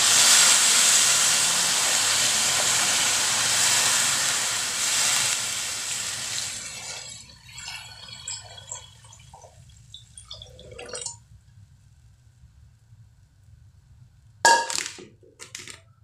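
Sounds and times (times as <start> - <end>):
water pouring into a wok: 0.0 - 11.1.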